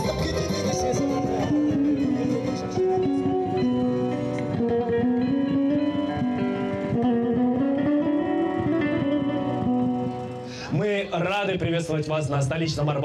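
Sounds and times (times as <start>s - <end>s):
lute rapid strumming: 0.0s - 13.0s.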